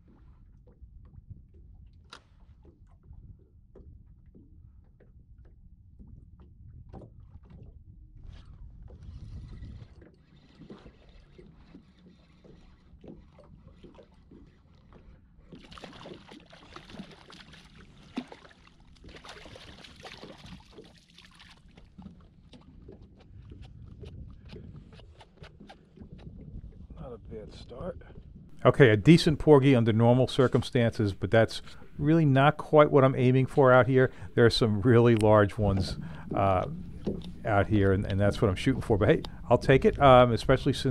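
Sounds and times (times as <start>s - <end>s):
water lapping against boat hull: 0.0s - 40.9s.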